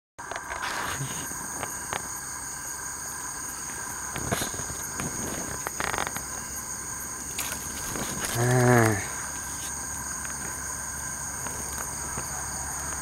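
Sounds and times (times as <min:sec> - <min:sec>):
insects trilling: 0:00.2 - 0:13.0
light rustles and clicks: 0:07.2 - 0:10.6.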